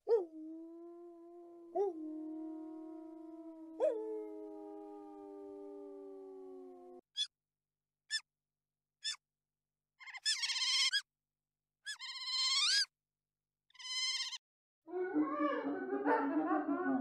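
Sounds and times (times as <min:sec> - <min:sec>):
sea otter squealing: 0:10.0 - 0:11.0, 0:11.9 - 0:12.9, 0:13.8 - 0:14.4.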